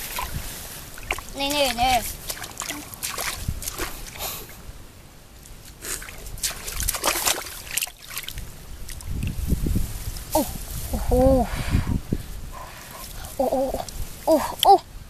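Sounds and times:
muddy water sloshing: 0.0 - 4.6, 5.4 - 9.4.

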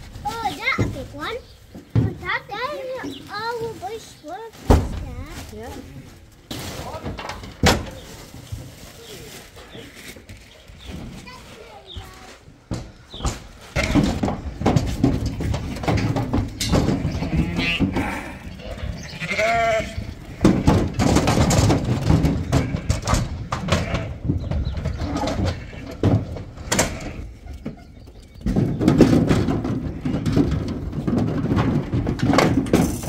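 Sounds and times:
hooves clattering and knocks: 0.0 - 33.0
sheep and lambs bleating: 16.8 - 20.7, 25.2 - 26.1.

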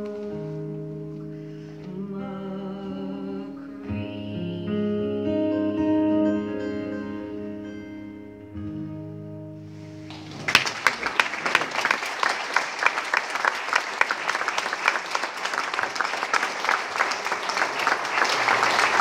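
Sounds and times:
acoustic guitar chord ringing: 0.0 - 10.3
audience applause: 10.1 - 19.0.

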